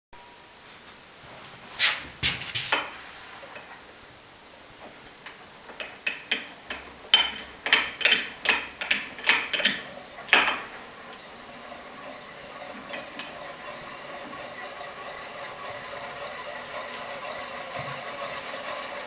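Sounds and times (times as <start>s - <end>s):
motor hum of spinning disc: 3.4s - 19.0s.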